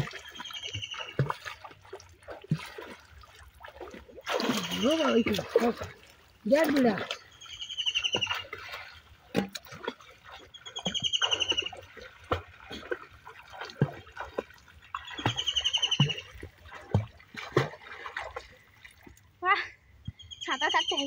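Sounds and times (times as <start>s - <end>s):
pond water splashing: 0.0s - 19.5s
bird rapid trilled call: 7.4s - 8.5s, 10.5s - 11.8s, 15.0s - 16.3s.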